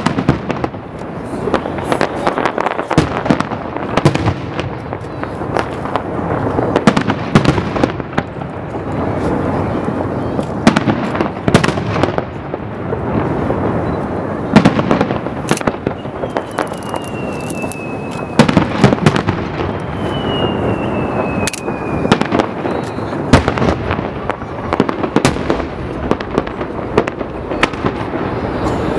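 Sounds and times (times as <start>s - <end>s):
firework shells bursting: 14.6s - 28.9s
high falling whistle: 15.9s - 18.5s, 19.6s - 23.1s.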